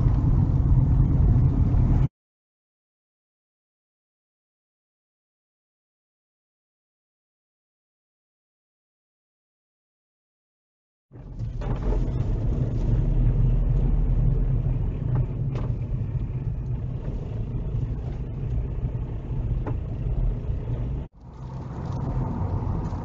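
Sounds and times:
car engine and tyre rumble: 0:00.0 - 0:02.1, 0:11.1 - 0:23.0.

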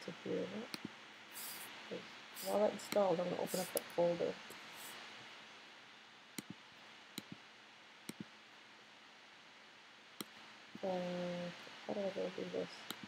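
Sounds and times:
low steady hiss: 0:00.0 - 0:13.0
computer mouse clicks: 0:00.7 - 0:01.6, 0:02.4 - 0:03.9, 0:06.4 - 0:06.6, 0:07.2 - 0:07.4, 0:08.1 - 0:08.3.

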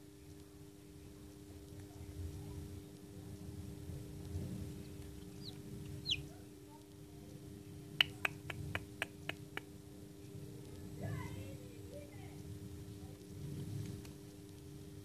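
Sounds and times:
low hum: 0:00.0 - 0:07.9
chick peeping: 0:04.8 - 0:06.4.

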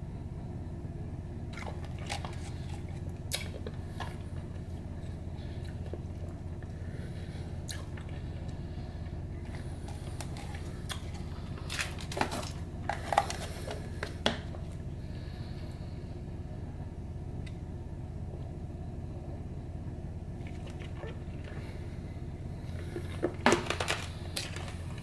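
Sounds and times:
steady low hum: 0:00.0 - 0:25.0
candy wrappers crinkling: 0:09.8 - 0:14.3.

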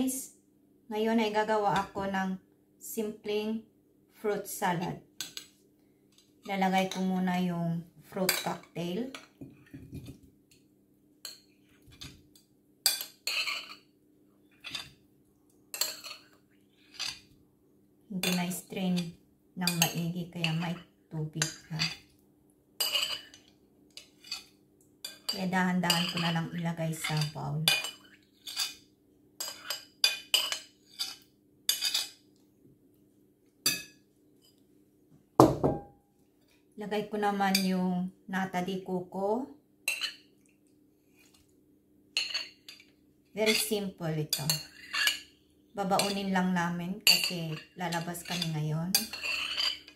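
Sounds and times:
spoon scraping ceramic plate: 0:12.9 - 0:13.9, 0:15.8 - 0:17.3, 0:22.8 - 0:26.4, 0:27.0 - 0:28.8, 0:29.4 - 0:32.2, 0:44.3 - 0:45.3, 0:47.0 - 0:49.9
crockery knock: 0:35.4 - 0:35.9.

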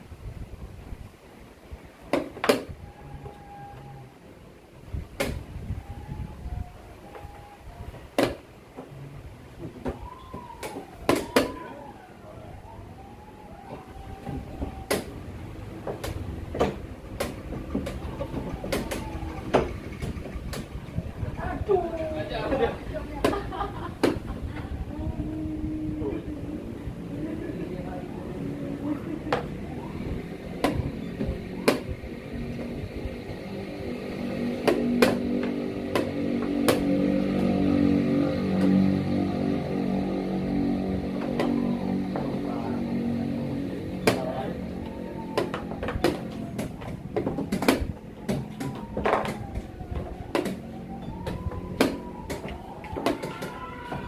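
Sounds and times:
low background rumble: 0:00.0 - 0:52.9
engine-like drone: 0:08.9 - 0:54.0
wooden chess pieces set down: 0:48.9 - 0:49.4.

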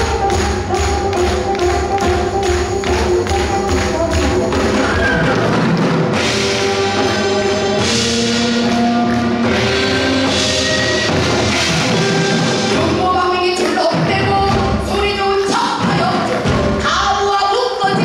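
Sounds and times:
held melodic instrument notes: 0:00.0 - 0:13.6
steady drumbeat: 0:00.0 - 0:18.0.

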